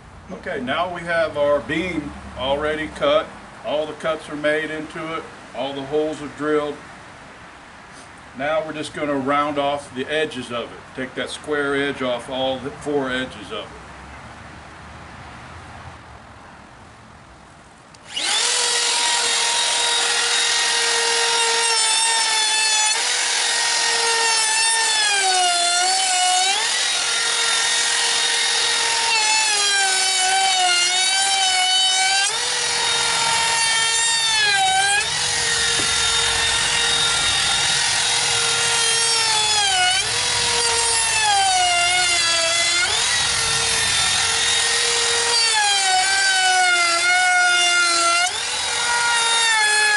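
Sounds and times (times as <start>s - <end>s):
router whining cutting wood: 18.0s - 49.9s.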